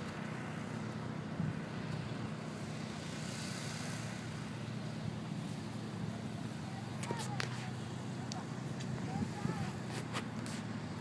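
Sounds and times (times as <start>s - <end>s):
engine idling: 0.0s - 11.0s.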